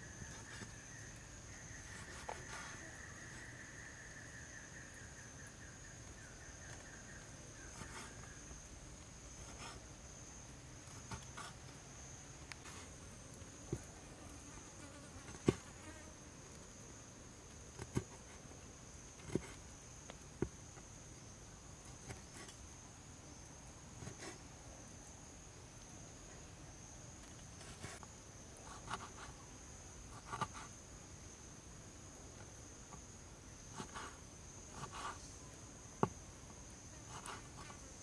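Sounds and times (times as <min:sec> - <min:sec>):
insect trill: 0:00.0 - 0:38.0.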